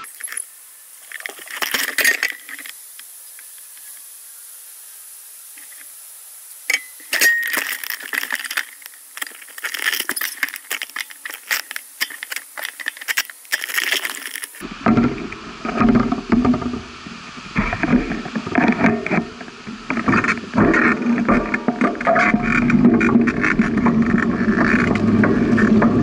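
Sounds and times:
bicycle rattling and clinking: 1.1 - 2.7, 6.7 - 14.6.

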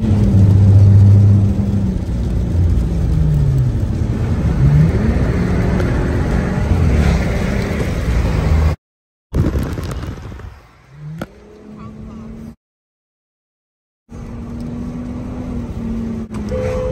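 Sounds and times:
car engine accelerating: 0.0 - 8.8
tyre noise on wet road: 0.0 - 11.8, 14.1 - 16.9.

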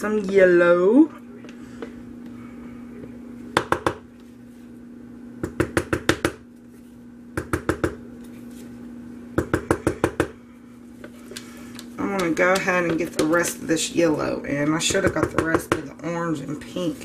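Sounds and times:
steady low hum: 0.0 - 17.0
spatula tapping: 9.4 - 10.4, 11.7 - 13.5, 14.6 - 15.9.

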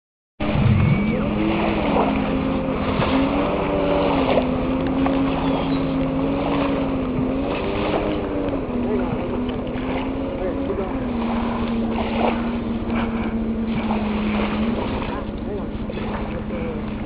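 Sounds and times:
wind noise on microphone: 0.4 - 4.4
engine drone: 0.4 - 17.0.

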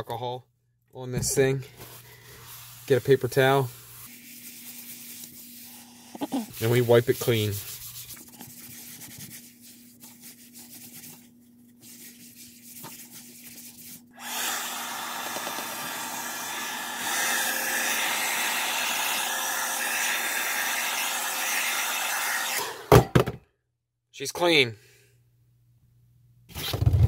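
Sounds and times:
paper towel wiping plastic mat: 1.6 - 14.1
hair dryer blowing: 14.2 - 23.0.

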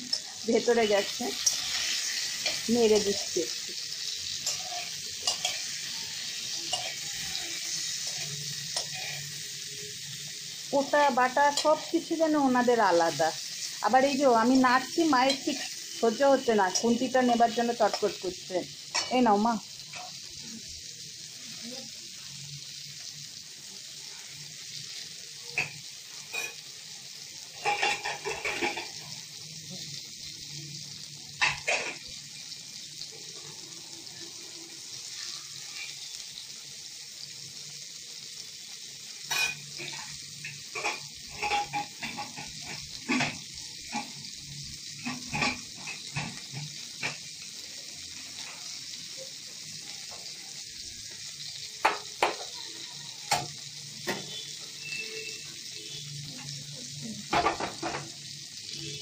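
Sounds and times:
steel spatula scraping a wok: 0.0 - 10.2, 14.8 - 18.2, 27.5 - 29.2, 39.3 - 44.2
vegetables sizzling in oil: 0.0 - 59.0.

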